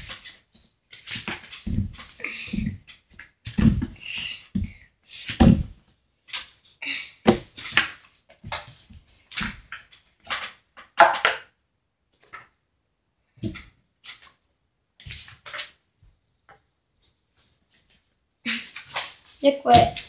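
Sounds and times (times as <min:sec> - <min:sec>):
hands working dough on table: 0:00.0 - 0:14.4, 0:15.0 - 0:20.0
heavy thumps: 0:01.6 - 0:02.9, 0:03.5 - 0:04.8, 0:05.4 - 0:05.8.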